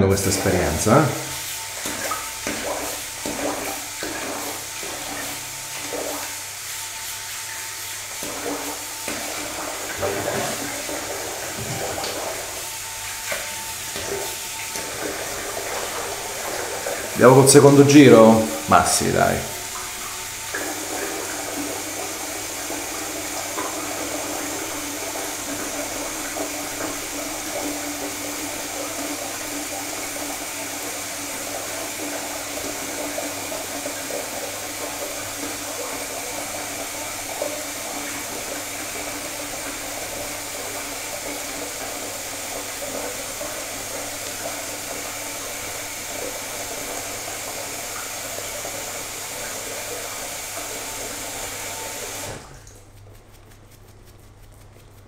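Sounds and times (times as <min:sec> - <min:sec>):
shaving brush swishing lather: 0:00.2 - 0:21.0, 0:49.8 - 0:55.0.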